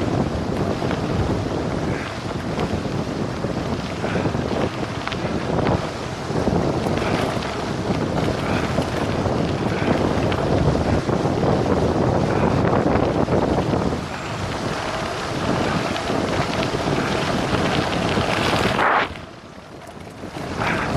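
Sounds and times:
tyres rumbling on gravel: 0.0s - 20.9s
wind rushing over microphone: 0.0s - 20.9s.

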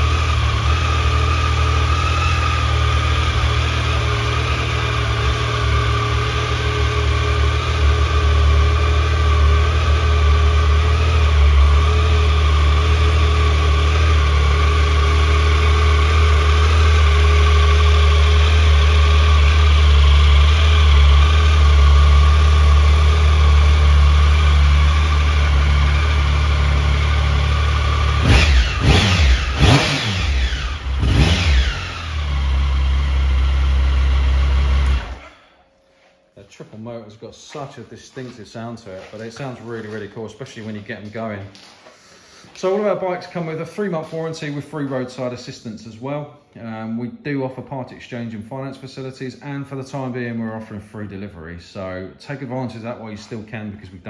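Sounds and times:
motorcycle engine idling and revving: 0.0s - 35.6s.

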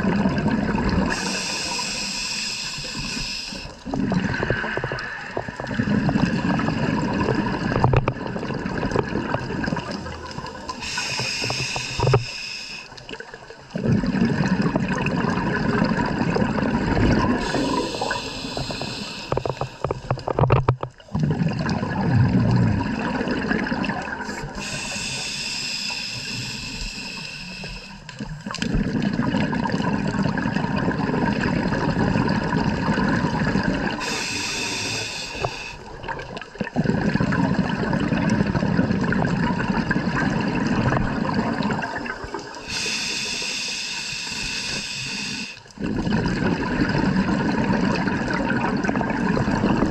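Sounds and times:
diver breathing through regulator: 1.1s - 5.2s, 10.7s - 13.0s, 17.3s - 20.2s, 24.2s - 28.1s, 33.8s - 36.1s, 42.6s - 45.8s.

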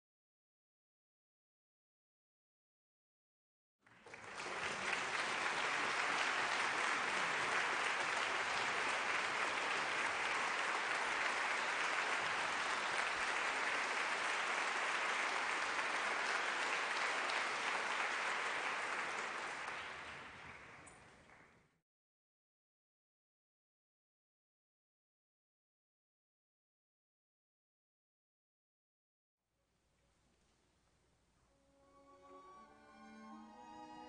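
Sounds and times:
large audience applauding: 3.8s - 21.8s.

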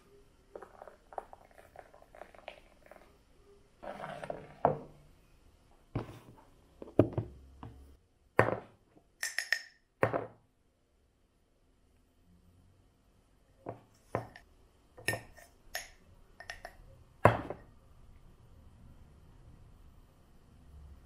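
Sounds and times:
kitchenware knocking and clinking: 15.0s - 17.6s.

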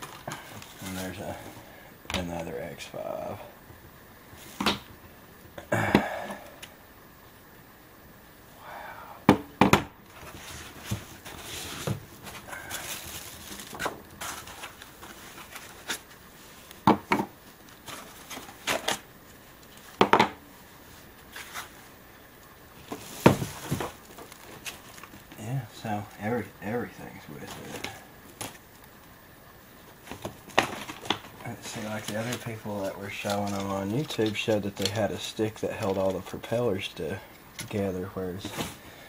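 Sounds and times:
plastic bags crinkling: 10.4s - 16.2s, 30.0s - 36.4s
plastic parts clacking: 33.1s - 36.3s.

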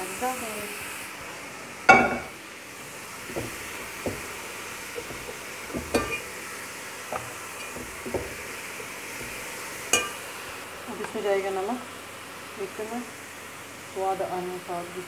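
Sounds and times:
rice sizzling in a pot: 0.0s - 15.0s
spatula scraping a metal pot: 3.2s - 6.3s.

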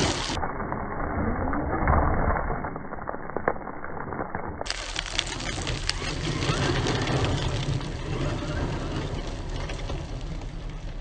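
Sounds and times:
tyres crunching gravel: 0.0s - 0.4s, 4.6s - 11.0s.

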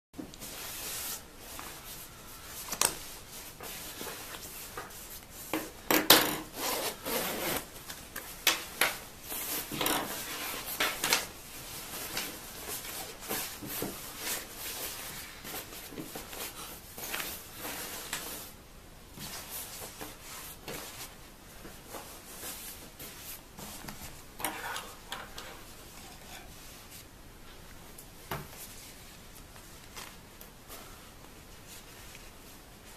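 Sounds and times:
nylon jacket rustling: 6.5s - 18.6s.

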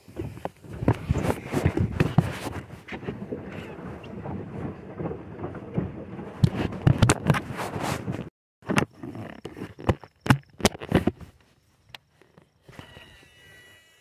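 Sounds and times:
phone handling rubbing and scraping: 0.2s - 2.9s, 6.5s - 13.8s
sharp knocks and clicks: 4.1s - 7.5s, 9.6s - 11.2s.

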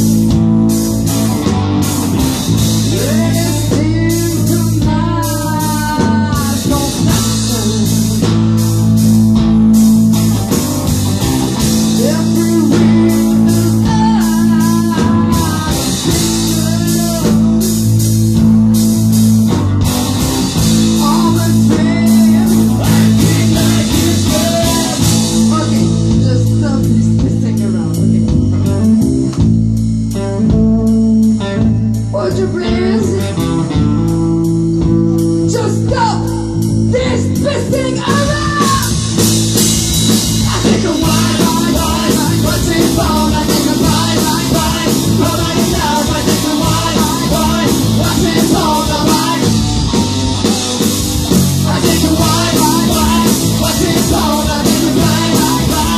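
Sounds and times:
live rock band playing: 0.0s - 55.9s
woman singing: 40.4s - 50.2s, 51.6s - 55.9s.

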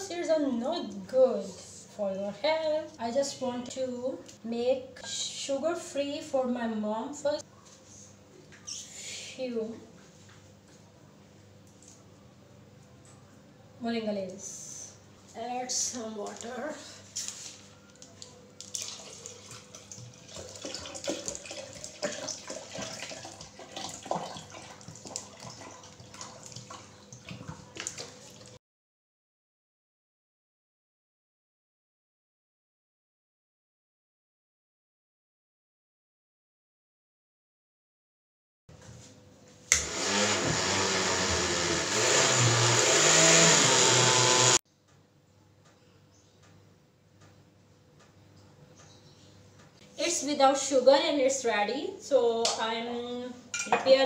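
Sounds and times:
water pouring into blender jar: 18.6s - 28.6s
blender running: 39.7s - 44.6s.

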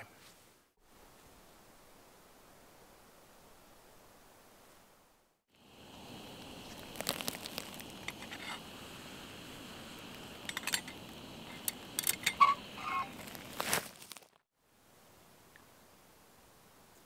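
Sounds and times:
gas stove hissing: 5.6s - 13.7s
metal pot lid clinking: 10.4s - 11.0s.

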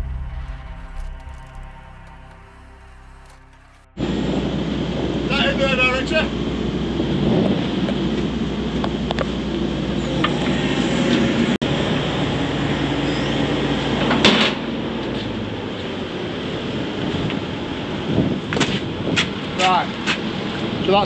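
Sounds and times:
excavator engine and hydraulics: 6.3s - 18.1s.

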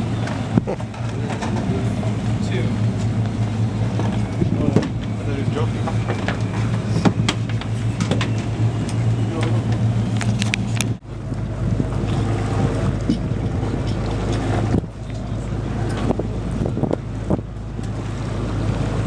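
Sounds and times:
boat engine droning: 0.0s - 19.0s
wind on microphone: 3.1s - 19.0s
scattered clicks: 9.7s - 11.0s.

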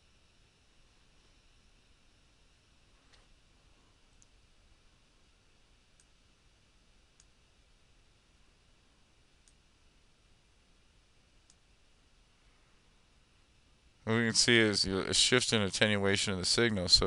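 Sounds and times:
computer mouse clicks: 4.2s - 4.4s.

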